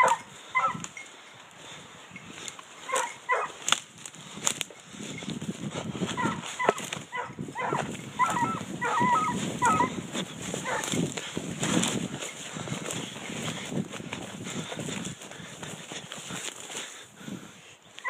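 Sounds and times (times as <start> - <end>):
hounds baying: 0.0 - 1.2, 2.8 - 3.7, 6.0 - 13.1
brush rustling: 0.0 - 18.0.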